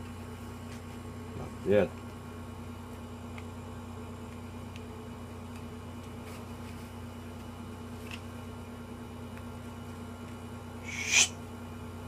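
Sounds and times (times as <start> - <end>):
low electrical hum: 0.0 - 12.0
sharp breath: 10.8 - 11.3.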